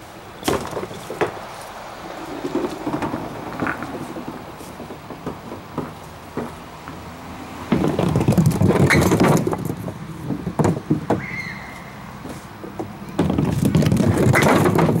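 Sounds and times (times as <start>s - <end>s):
wooden pins clattering: 0.4s - 1.4s, 2.2s - 7.0s, 7.7s - 11.2s, 12.6s - 15.0s
bowling ball rolling on wooden lane: 2.0s - 11.2s, 12.6s - 15.0s
pins knocking: 2.4s - 7.0s, 7.7s - 11.2s.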